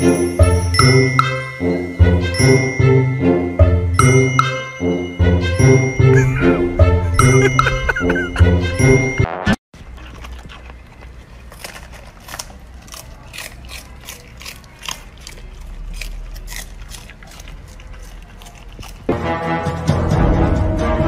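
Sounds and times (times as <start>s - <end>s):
puppy crunching cabbage leaves: 9.8s - 19.4s.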